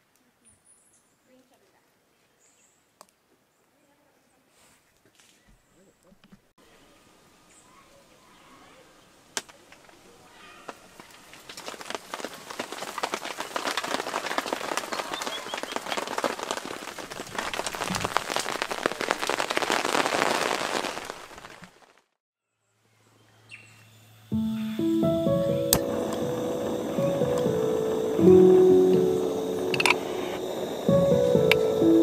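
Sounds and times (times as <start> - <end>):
dense crackling and rustling: 10.6 - 22.2, 24.8 - 32.0.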